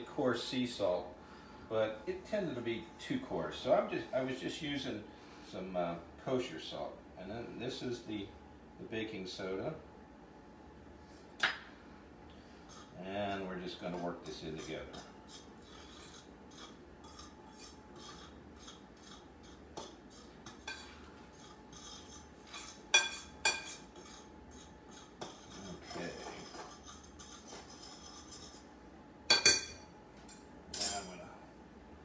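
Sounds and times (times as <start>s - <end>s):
utensil stirring flour in bowl: 12.6s - 28.7s.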